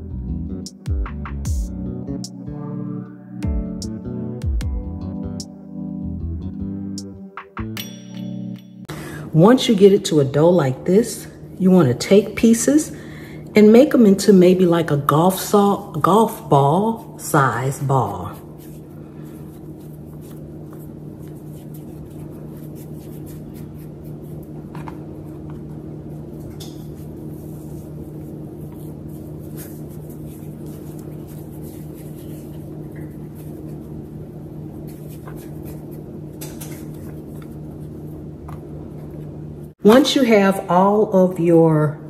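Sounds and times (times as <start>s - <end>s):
low appliance hum: 8.9s - 42.0s
hands rolling dough on wood: 15.5s - 39.4s.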